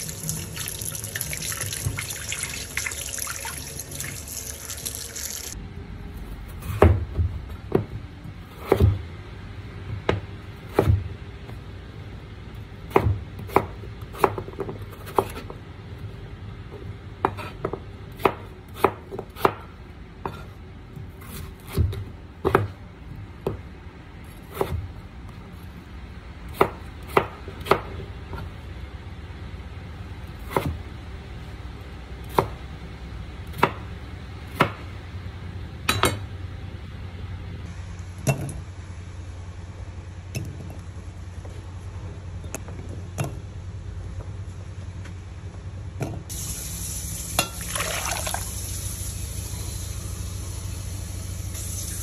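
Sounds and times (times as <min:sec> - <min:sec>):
knife chopping on cutting board: 0:06.6 - 0:09.0, 0:10.0 - 0:11.1, 0:12.9 - 0:15.5, 0:17.2 - 0:20.5, 0:21.2 - 0:22.8, 0:24.5 - 0:24.9, 0:30.4 - 0:30.8.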